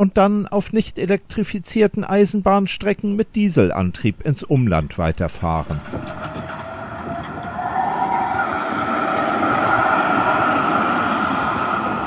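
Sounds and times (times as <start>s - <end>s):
tram rolling on rails: 5.3s - 12.0s
traction motor whine: 5.8s - 12.0s.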